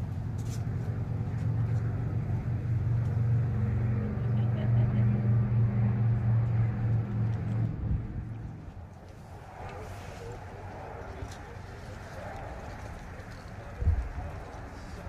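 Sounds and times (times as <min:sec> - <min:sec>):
low engine drone: 0:00.0 - 0:15.0.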